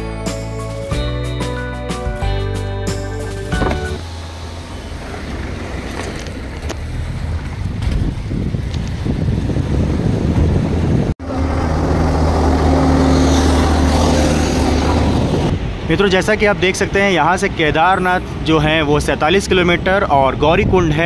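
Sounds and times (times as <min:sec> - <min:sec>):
vehicle engine humming: 0:00.0 - 0:20.8
wind on microphone: 0:07.2 - 0:12.3, 0:13.3 - 0:15.9.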